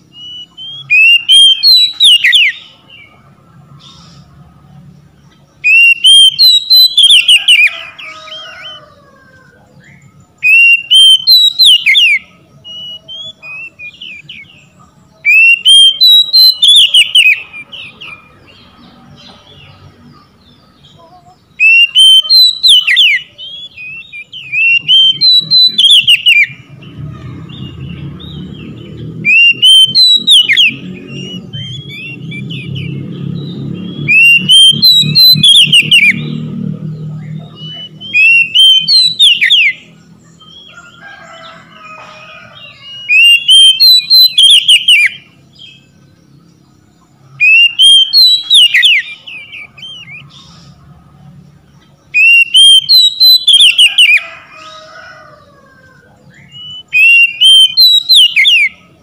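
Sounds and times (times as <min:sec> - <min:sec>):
bird singing whistled phrases: 0:00.1 - 0:02.7, 0:05.6 - 0:07.7, 0:09.9 - 0:14.5, 0:15.2 - 0:18.2, 0:21.6 - 0:26.6, 0:29.2 - 0:33.0, 0:33.8 - 0:36.4, 0:37.5 - 0:39.9, 0:42.8 - 0:45.3, 0:47.4 - 0:50.6, 0:52.2 - 0:54.2, 0:56.3 - 0:58.8
low rumbling noise: 0:23.4 - 0:39.2.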